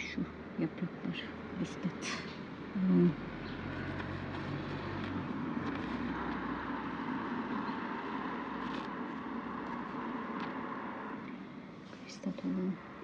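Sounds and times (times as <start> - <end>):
mechanical rumble: 2.3 - 11.4.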